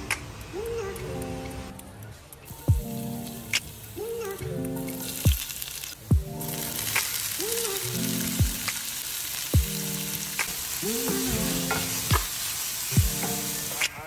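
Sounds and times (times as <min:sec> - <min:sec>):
vegetables sizzling in a pan: 0:02.5 - 0:14.0
music with bass-drum beat: 0:02.7 - 0:03.7, 0:06.1 - 0:07.2, 0:08.4 - 0:08.8, 0:09.6 - 0:14.0.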